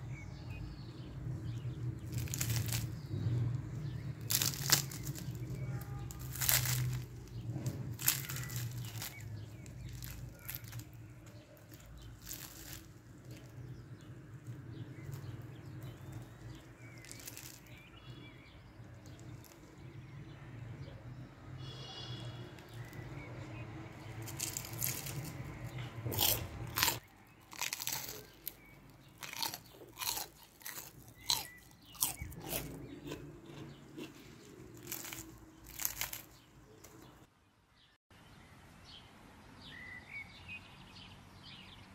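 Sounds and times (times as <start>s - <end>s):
fried dough crust crackling: 0.4s - 20.4s, 22.2s - 37.3s
plastic gloves crinkling: 2.0s - 3.2s, 3.9s - 19.8s, 24.0s - 32.4s, 34.2s - 37.2s.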